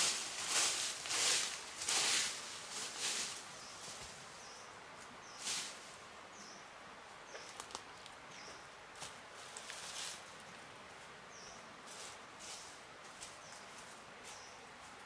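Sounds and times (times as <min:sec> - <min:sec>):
rustling swishes of grass: 0:00.0 - 0:06.1, 0:08.9 - 0:10.4, 0:11.8 - 0:15.0.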